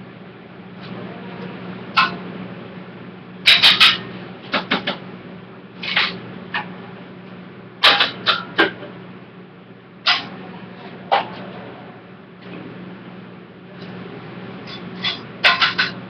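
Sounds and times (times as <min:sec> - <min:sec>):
metal cookware clattering: 0:03.5 - 0:04.0, 0:14.7 - 0:16.0.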